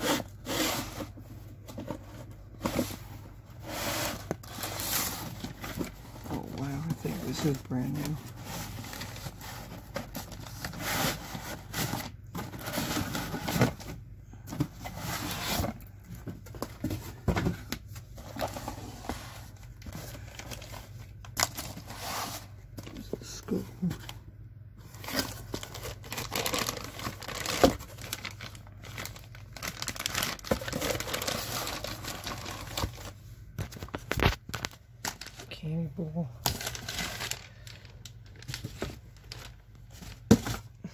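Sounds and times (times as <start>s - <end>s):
cardboard boxes rustling: 0.0s - 24.2s, 24.8s - 35.4s, 36.5s - 40.9s
plastic bags crinkling: 24.9s - 35.7s, 36.4s - 40.8s.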